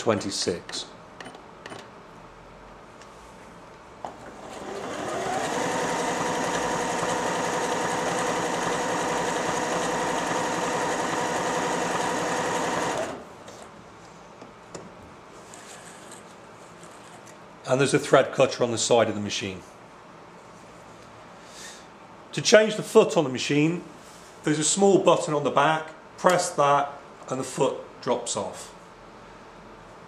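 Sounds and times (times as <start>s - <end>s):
sewing machine sewing: 4.1s - 13.2s.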